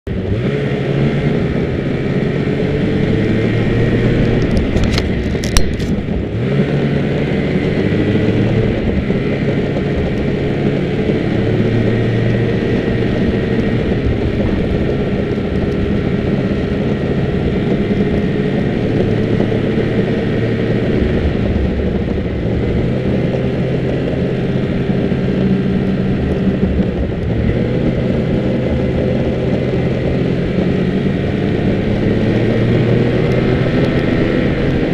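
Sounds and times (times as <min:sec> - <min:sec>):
snowmobile engine running: 0:00.0 - 0:34.9.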